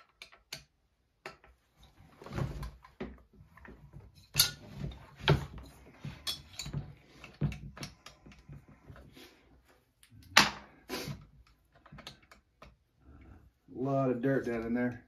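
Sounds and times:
tools clicking and knocking on wood: 0.0 - 2.0, 2.6 - 9.1, 10.0 - 12.8.

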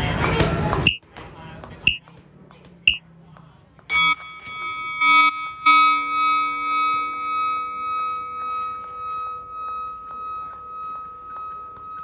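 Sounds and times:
sustained instrumental chord: 3.9 - 12.0.

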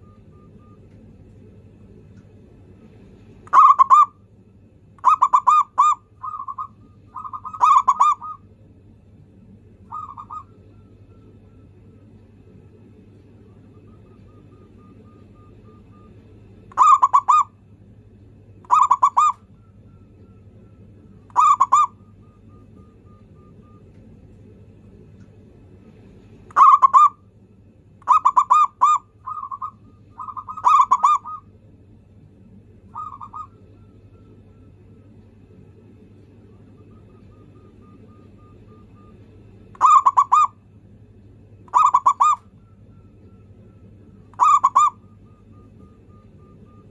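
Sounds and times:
dove cooing: 3.5 - 4.2, 5.0 - 8.5, 9.8 - 11.0, 13.5 - 17.5, 18.6 - 19.5, 21.2 - 23.8, 26.5 - 27.2, 28.0 - 31.5, 32.9 - 34.0, 39.8 - 40.6, 41.7 - 42.5, 44.3 - 46.9.

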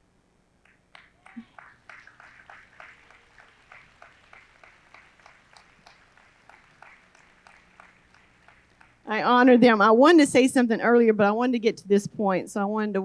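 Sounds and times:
faint applause: 0.6 - 9.1.

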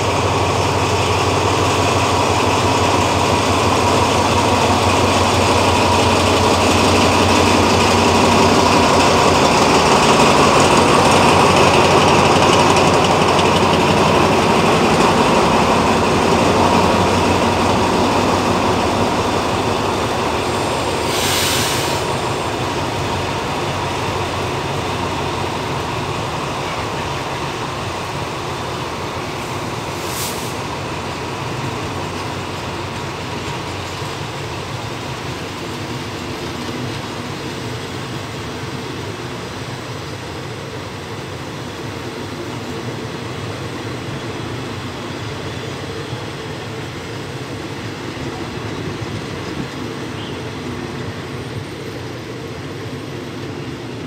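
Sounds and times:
diesel locomotive engine: 0.0 - 54.0
train coaches rolling on rails: 0.0 - 54.0
brief high hissing: 21.0 - 22.2, 29.9 - 30.7.

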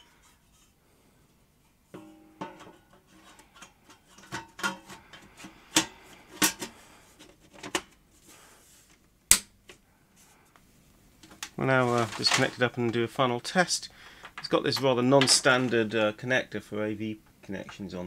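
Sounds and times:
clicks and knocks of parts: 2.0 - 8.0.

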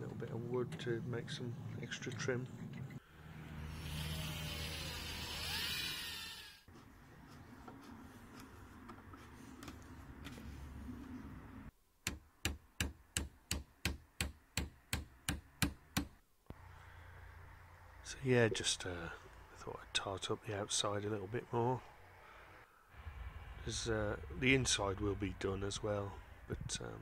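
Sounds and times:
steady noise: 22.9 - 26.6.

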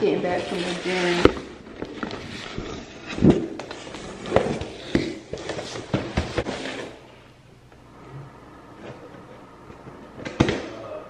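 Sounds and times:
cardboard scraping and rustling: 0.3 - 7.0.

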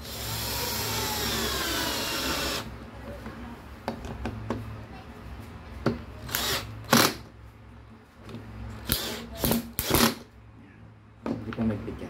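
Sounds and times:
cordless drill driving screws: 0.0 - 2.7, 6.3 - 7.2, 8.8 - 10.2.

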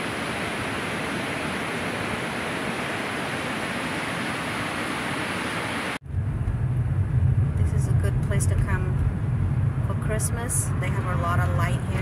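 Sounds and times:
car rumbling: 6.0 - 12.0.

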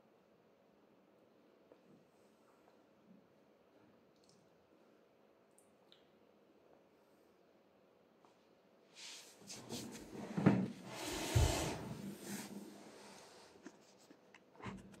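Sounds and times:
socked feet sliding on wood: 10.8 - 13.6.

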